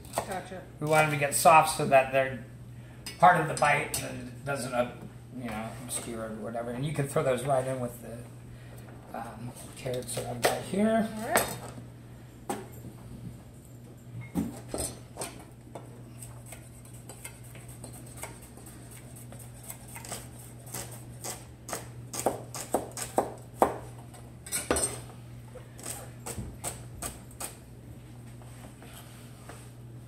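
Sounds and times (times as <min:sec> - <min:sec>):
steady low hum: 0:00.0 - 0:30.0
knives chopping on cutting boards: 0:17.2 - 0:24.0.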